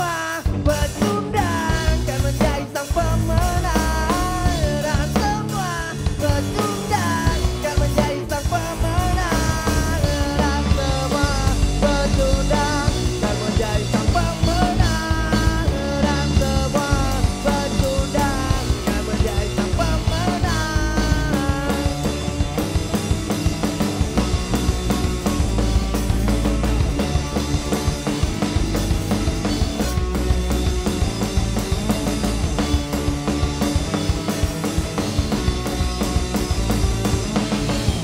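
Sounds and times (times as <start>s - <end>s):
man singing: 0.0s - 22.3s
punk rock band playing: 0.0s - 38.0s.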